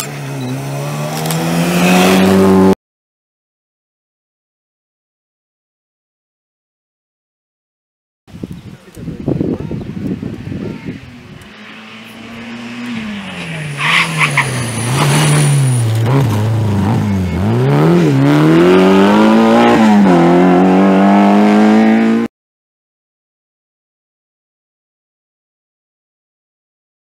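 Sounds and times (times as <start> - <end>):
rally car engine revving: 0.0 - 2.8, 11.0 - 22.3
tyre squeal: 13.0 - 17.7.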